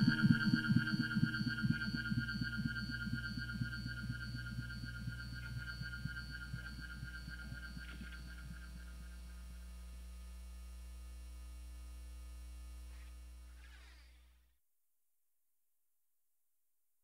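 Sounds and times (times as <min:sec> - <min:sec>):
fast pulsing throb: 0:00.0 - 0:09.8
deep electronic drone: 0:00.0 - 0:10.2.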